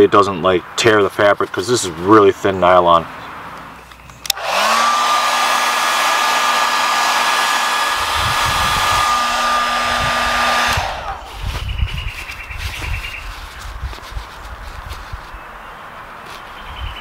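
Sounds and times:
hair dryer motor blowing: 0:04.3 - 0:11.4
low rumbling: 0:07.6 - 0:13.0.

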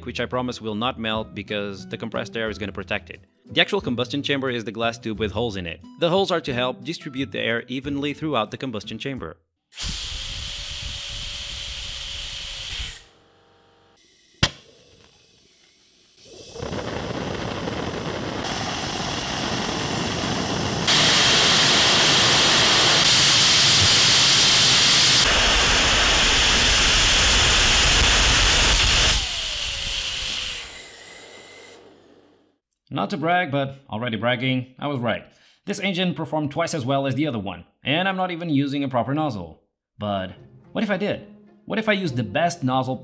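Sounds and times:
compressed air jet hissing: 0:14.0 - 0:32.2
combustion chamber rushing roar: 0:16.3 - 0:30.8.

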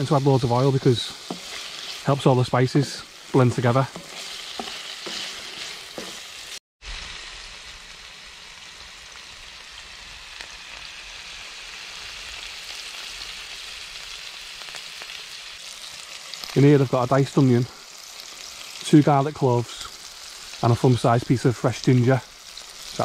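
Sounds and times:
meat sizzling in a frying pan: 0:00.0 - 0:23.0
wooden spoon stirring and knocking: 0:00.9 - 0:06.4.

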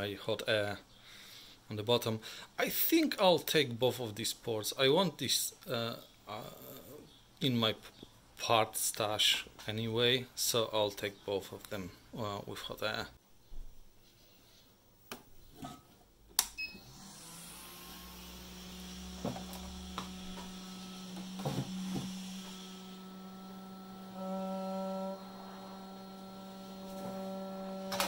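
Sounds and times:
hot air blower humming and hissing: 0:16.8 - 0:28.0.

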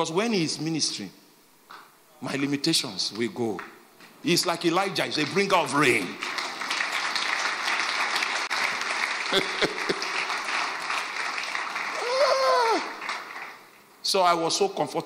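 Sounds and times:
congregation applauding: 0:04.9 - 0:13.9
person calling out: 0:12.0 - 0:12.9.

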